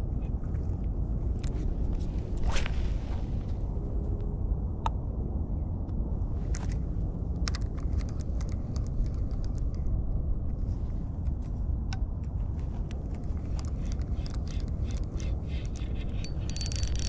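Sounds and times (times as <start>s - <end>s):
low outdoor rumble: 0.0s - 17.0s
light irregular clicks: 7.4s - 10.0s.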